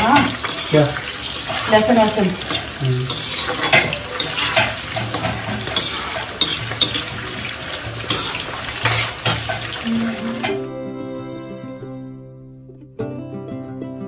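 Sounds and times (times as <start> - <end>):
metal tongs clinking on pan: 0.0 - 9.7
peppers sizzling in a pan: 0.0 - 10.7
plucked-string music: 9.8 - 14.0.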